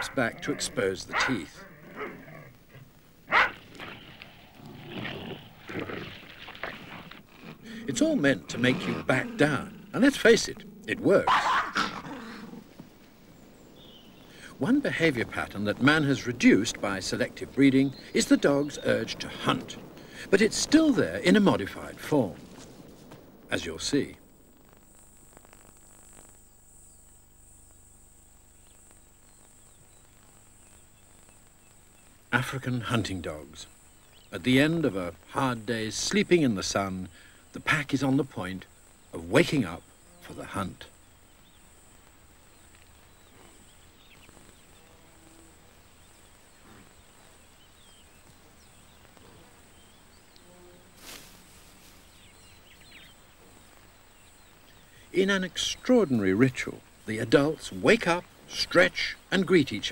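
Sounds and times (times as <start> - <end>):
short low animal calls: 0.0 - 13.0
faint chirps: 0.0 - 59.9
high-pitched insect chorus: 0.0 - 59.9.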